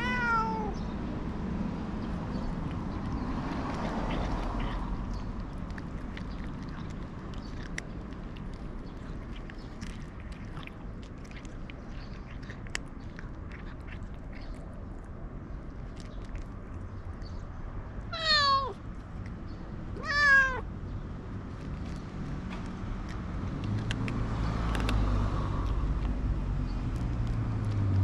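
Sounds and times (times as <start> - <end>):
cat crunching dry kibble: 0.0 - 0.8, 2.0 - 17.3, 21.5 - 28.0
cat meowing: 0.0 - 0.8, 18.1 - 18.8, 19.9 - 20.7.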